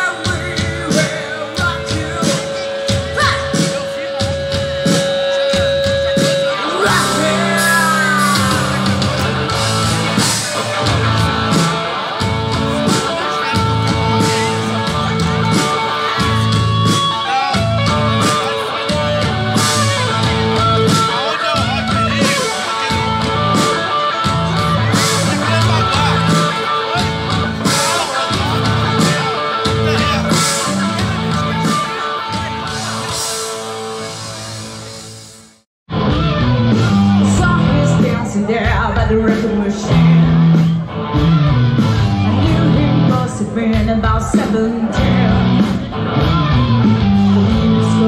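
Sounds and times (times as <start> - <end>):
person singing: 0.0 - 20.1
rock band playing live: 0.0 - 48.0.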